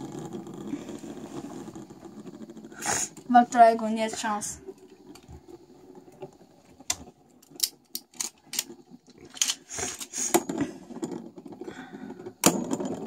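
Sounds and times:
rattling scrape: 0.0 - 6.9, 7.5 - 13.0.

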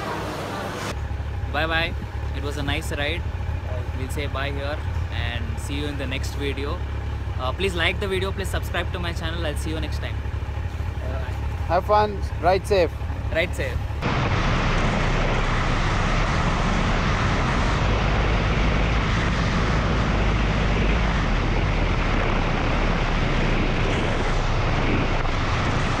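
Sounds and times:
motorcycle engine and road noise: 0.0 - 26.0
wind buffeting microphone: 13.9 - 26.0.

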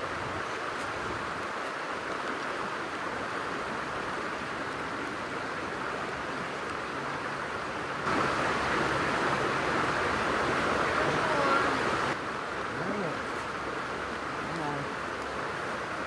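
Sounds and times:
creek water rushing: 0.0 - 16.0.

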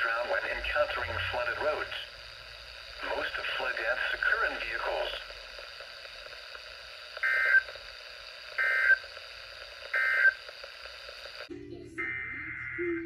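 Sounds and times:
digital data bursts: 0.0 - 5.5
radio hiss: 0.0 - 11.5.

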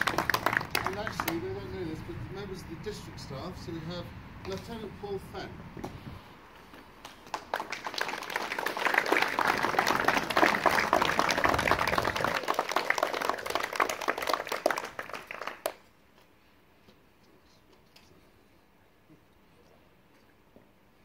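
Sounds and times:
audience applauding: 0.0 - 1.4, 7.0 - 15.8.

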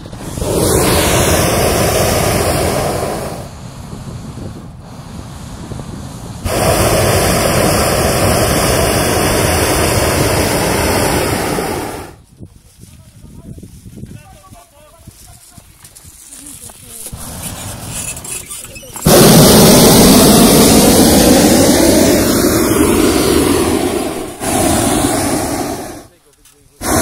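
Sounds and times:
inflator fan engine running: 0.0 - 12.2, 19.0 - 26.1, 26.8 - 27.0
propane burner roaring: 0.0 - 12.2, 17.0 - 26.1.

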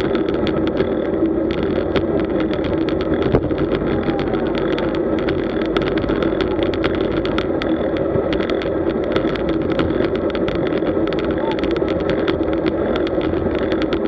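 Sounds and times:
bike rattling: 0.0 - 14.0
tyre noise: 0.0 - 14.0.

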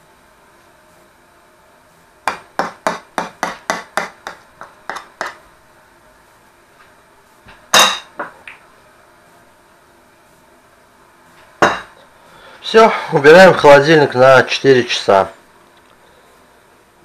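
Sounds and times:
utensil tapping a dish: 2.3 - 5.4.

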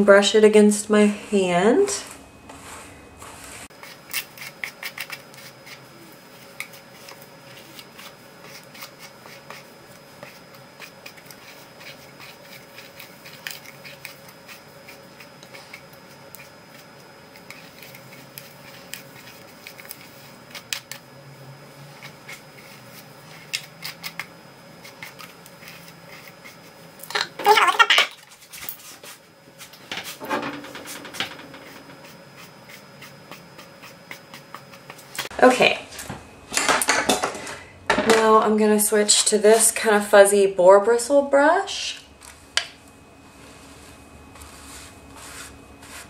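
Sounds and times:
brush raking through hair: 0.9 - 21.0, 27.5 - 35.3, 43.3 - 46.0.

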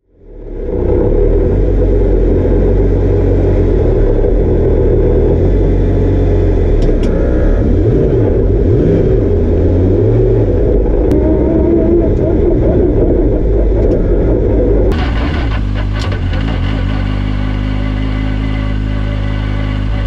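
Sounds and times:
race car engine idling: 0.2 - 20.0.

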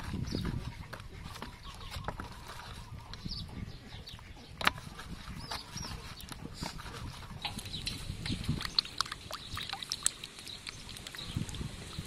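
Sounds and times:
wet squelches: 0.0 - 12.0
water sloshing and splashing: 4.6 - 12.0.

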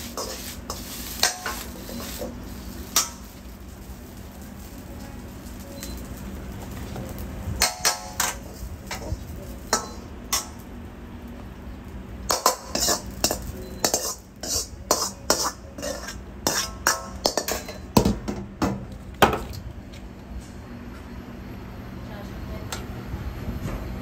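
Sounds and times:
metal utensils clanking on pans: 0.0 - 3.5, 6.6 - 10.7, 12.2 - 18.4.

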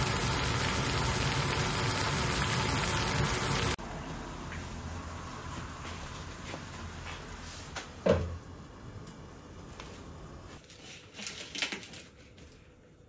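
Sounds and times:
gas burner hissing: 0.0 - 3.8.

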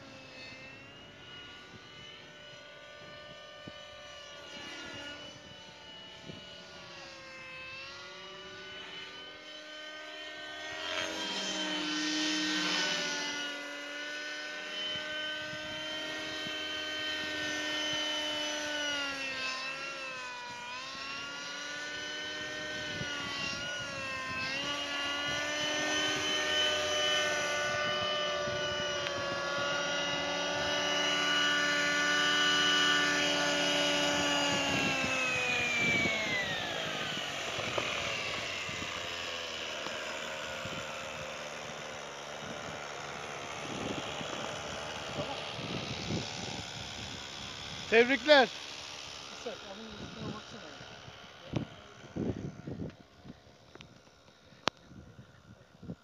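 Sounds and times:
model helicopter engine whine: 0.0 - 56.0.

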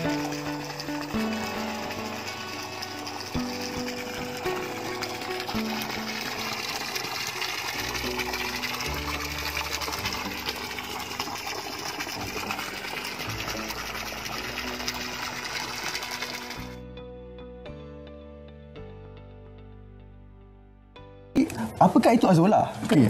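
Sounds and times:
water pouring into pond: 0.0 - 16.8
background music: 0.0 - 23.0.

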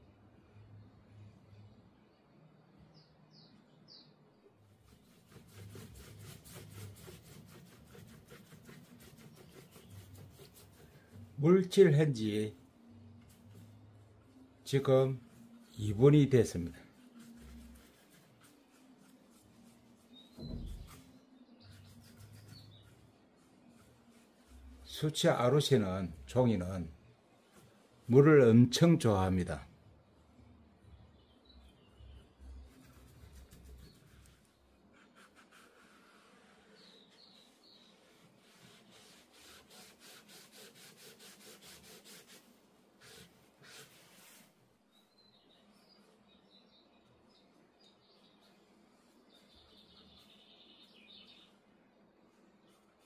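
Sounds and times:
brush strokes on paper: 4.7 - 29.0, 32.0 - 46.4, 47.4 - 53.0
soft low thump: 20.4 - 21.1.

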